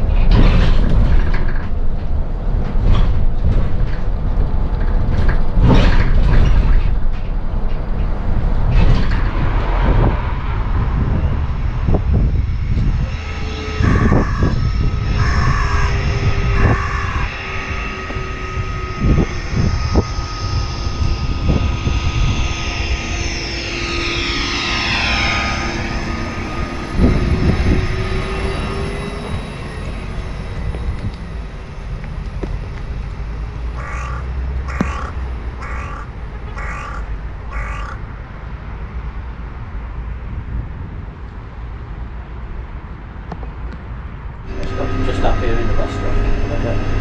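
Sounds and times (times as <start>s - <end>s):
electric bus whine: 0.0s - 47.0s
wind rumble on microphone: 0.0s - 47.0s
crow cawing: 13.8s - 17.4s, 33.8s - 38.1s.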